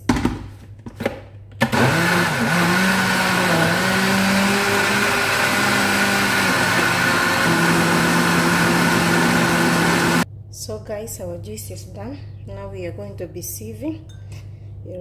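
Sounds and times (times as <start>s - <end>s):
blender chopping fruit: 1.6s - 10.2s.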